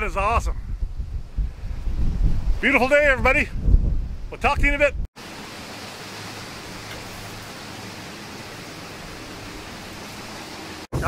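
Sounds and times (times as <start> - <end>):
steady rushing hiss: 5.2 - 11.0.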